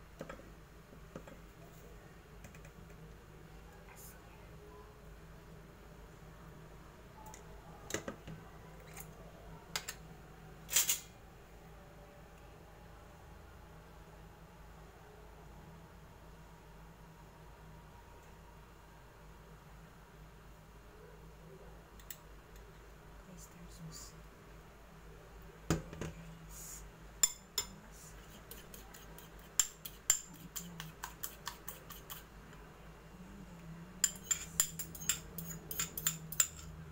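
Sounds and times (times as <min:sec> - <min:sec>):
cutlery clinking on ceramic bowls: 0:34.0 - 0:36.8.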